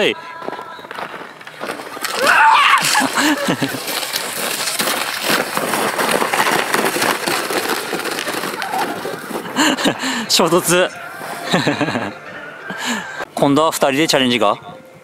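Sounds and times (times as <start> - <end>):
sled runners scraping snow: 0.4 - 12.1
person shouting: 2.2 - 3.0.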